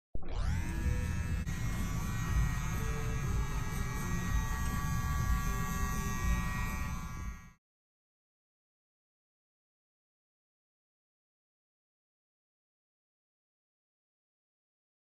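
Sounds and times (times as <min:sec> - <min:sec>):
electric hair clippers buzzing: 0:00.3 - 0:07.6.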